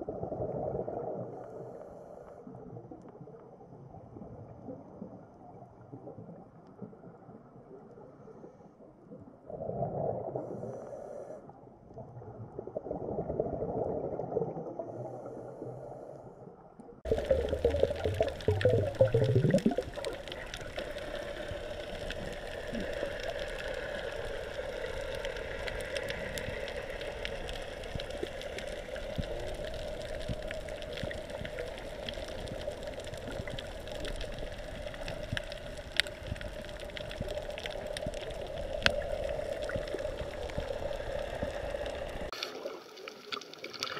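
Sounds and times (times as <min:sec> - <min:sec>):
faint underwater clicks: 0:14.2 - 0:43.9
muffled underwater noise: 0:17.1 - 0:43.9.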